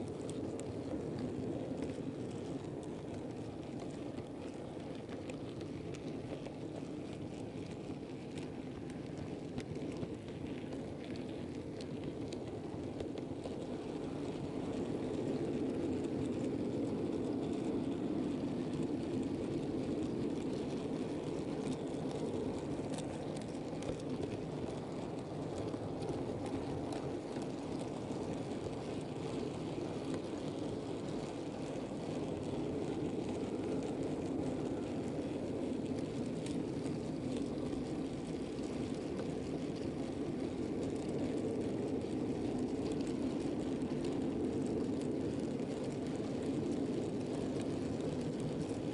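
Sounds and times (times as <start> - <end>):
faint track clicks: 19.2 - 46.8.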